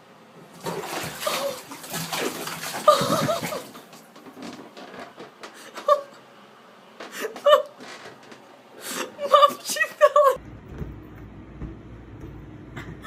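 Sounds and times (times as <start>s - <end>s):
water splashing in bathtub: 0.4s - 4.9s.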